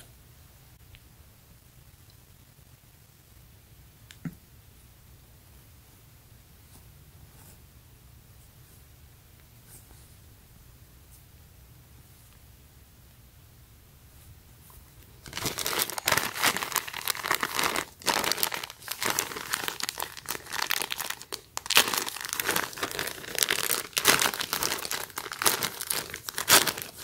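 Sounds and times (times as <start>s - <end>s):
plastic packaging crinkling: 15.2s - 27.0s.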